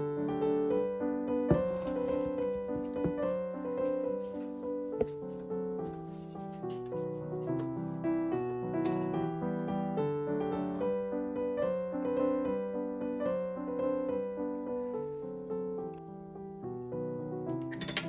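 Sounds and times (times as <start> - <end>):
slow piano music: 0.0 - 18.0.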